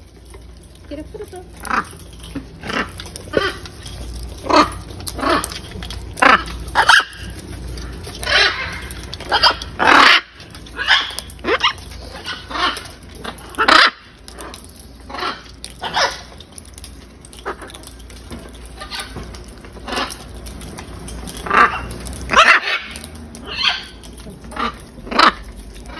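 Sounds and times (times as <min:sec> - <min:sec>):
macaws squawking: 0:01.6 - 0:16.5, 0:21.3 - 0:25.9.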